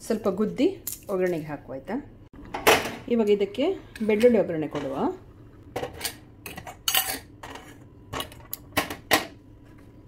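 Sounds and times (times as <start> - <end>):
metal cookware clinking: 5.8 - 8.4.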